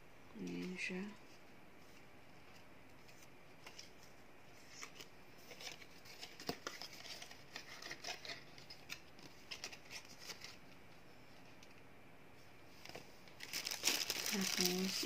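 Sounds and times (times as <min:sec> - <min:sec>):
paper and cardboard box rustling: 0:04.6 - 0:10.6, 0:12.9 - 0:15.0.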